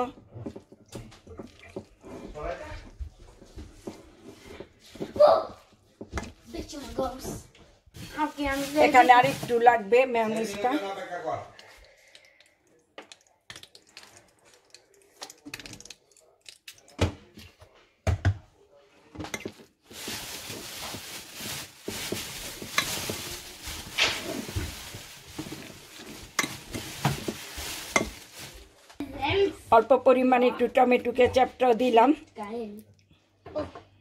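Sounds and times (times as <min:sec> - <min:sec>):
fork stirring food in a dish: 0:22.2 - 0:24.6, 0:25.3 - 0:28.2.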